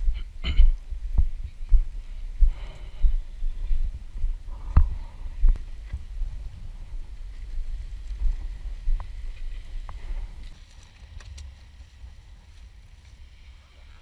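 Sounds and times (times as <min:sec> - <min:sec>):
wind buffeting microphone: 0:00.0 - 0:10.6.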